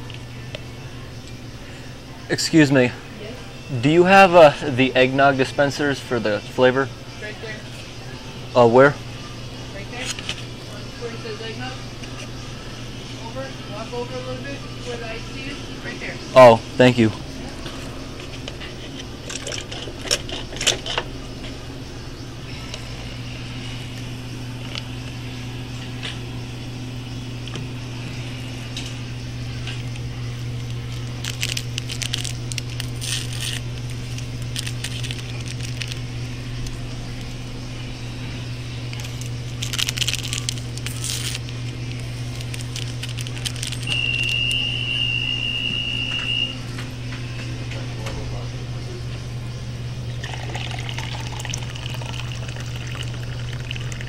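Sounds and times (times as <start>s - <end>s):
low equipment hum: 0.0s - 54.0s
high steady tone: 43.7s - 46.7s.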